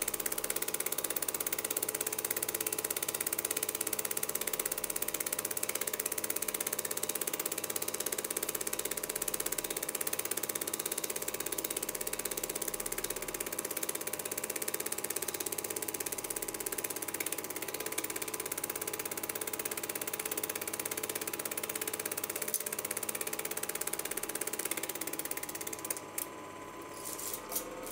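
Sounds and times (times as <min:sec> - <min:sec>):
film projector clattering: 0:00.0 - 0:26.4
even hum: 0:25.8 - 0:27.9.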